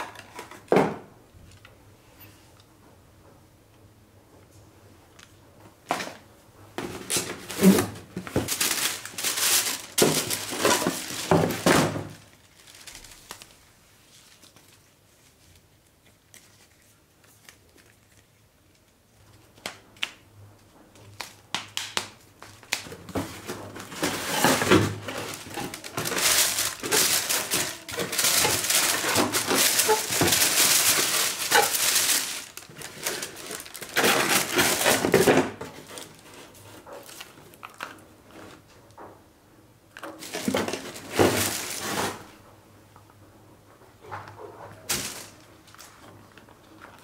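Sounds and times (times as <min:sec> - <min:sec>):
paper rustling and crinkling: 0:06.8 - 0:21.4, 0:22.0 - 0:38.8, 0:40.0 - 0:42.4, 0:44.7 - 0:47.0.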